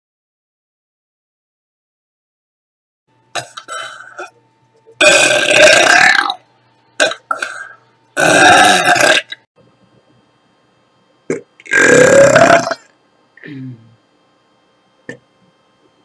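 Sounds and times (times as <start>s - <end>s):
woman burping loudly: 5.0s - 6.4s, 7.0s - 9.4s, 11.3s - 12.9s.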